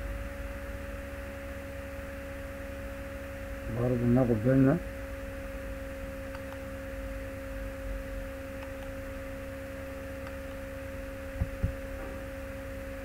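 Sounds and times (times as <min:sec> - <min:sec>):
steady electrical hum: 0:00.0 - 0:13.0.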